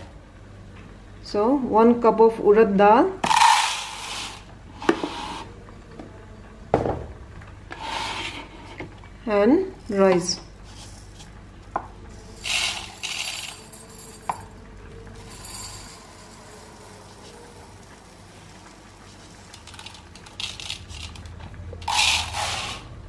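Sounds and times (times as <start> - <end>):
rice grains pouring rattling: 15.2 - 22.9.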